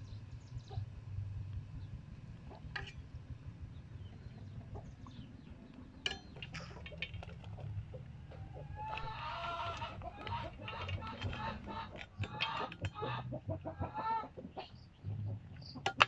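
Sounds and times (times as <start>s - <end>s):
steady low rumble: 0.0s - 16.0s
chickens clucking: 2.4s - 16.0s
metal ladle clinking on pot: 6.0s - 7.3s.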